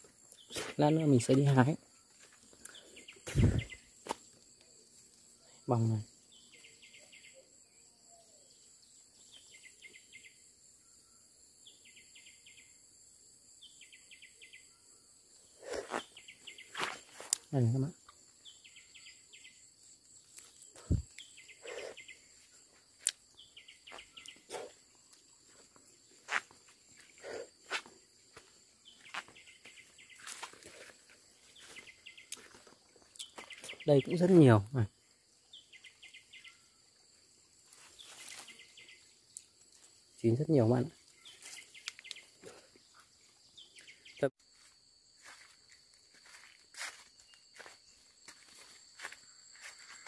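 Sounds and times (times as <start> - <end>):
footsteps crunching twigs and leaves: 0.0 - 5.3, 15.7 - 17.5, 20.0 - 34.5, 37.5 - 40.1, 41.0 - 50.0
high insect drone: 0.0 - 50.0.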